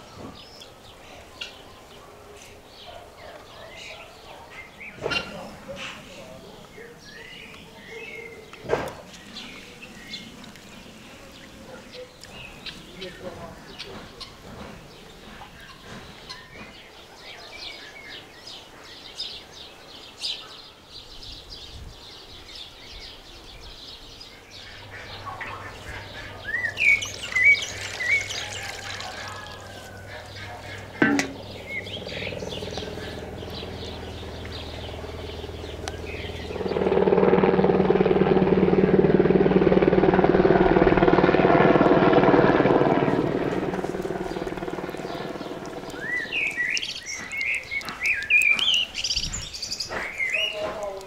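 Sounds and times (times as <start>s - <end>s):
birds chirping: 0.0s - 51.0s
loud engine drone: 24.6s - 28.8s, 29.9s - 46.9s.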